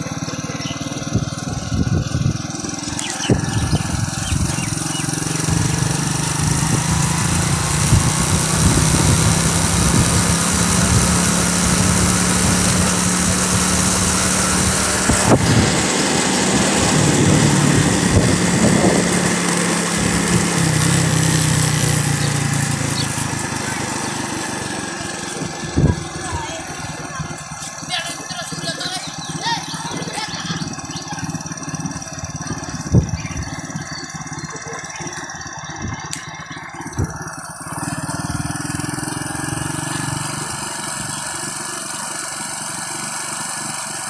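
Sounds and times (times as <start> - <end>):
motorcycle engine running: 0.0 - 44.0
wind rushing over microphone: 1.1 - 2.4, 15.0 - 15.8, 16.8 - 19.2.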